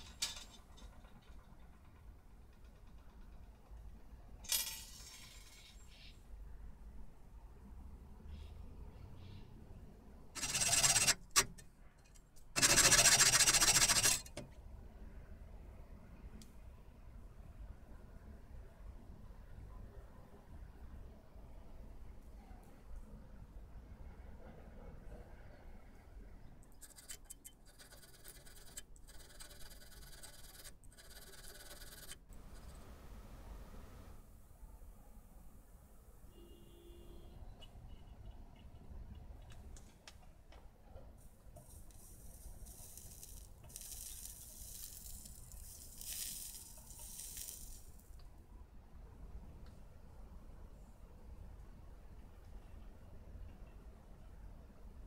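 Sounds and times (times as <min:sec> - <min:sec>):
hacksaw cutting metal rod: 0:10.4 - 0:11.6, 0:12.6 - 0:14.4
hand file scraping metal: 0:10.4 - 0:11.6, 0:12.6 - 0:14.4, 0:26.8 - 0:32.2.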